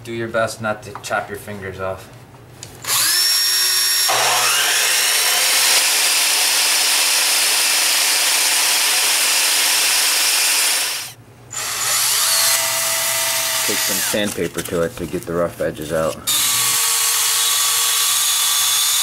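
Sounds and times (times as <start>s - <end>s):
power saw whine: 2.8s - 14.4s
wood rasping on saw blade: 11.7s - 14.5s.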